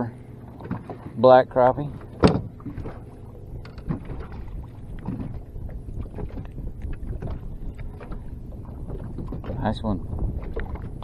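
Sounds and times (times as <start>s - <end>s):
water lapping against boat hull: 0.0s - 11.0s
wind rumbling on microphone: 1.8s - 11.0s
light handling clicks and knocks: 3.6s - 4.2s.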